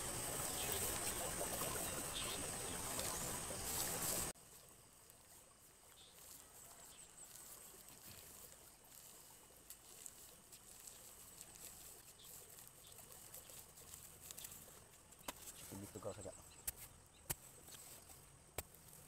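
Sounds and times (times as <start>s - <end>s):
steady noisy hiss: 0.0s - 19.0s.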